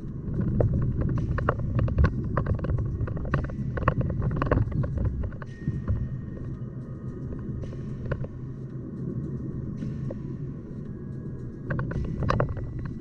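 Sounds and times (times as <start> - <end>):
road and engine rumble: 0.0 - 13.0
knocks and rattles from road: 0.3 - 6.1.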